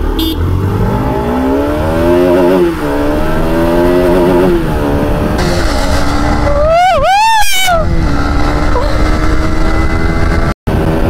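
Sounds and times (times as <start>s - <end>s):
motorcycle engine accelerating: 0.0s - 11.0s
horn toot: 0.2s - 0.5s.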